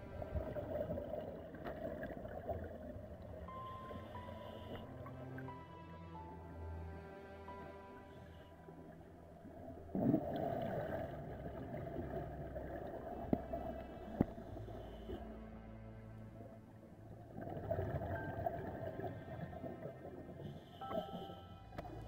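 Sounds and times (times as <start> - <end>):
low steady hum: 0.0 - 22.0
underwater exhalation bubbles: 9.9 - 12.2.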